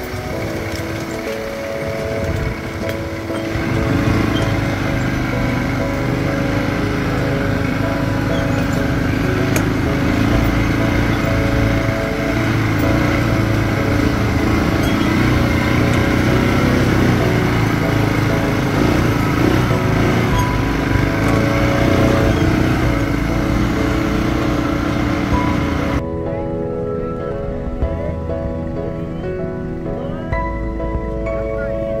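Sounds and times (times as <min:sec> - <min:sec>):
small petrol engine running: 0:00.0 - 0:26.0.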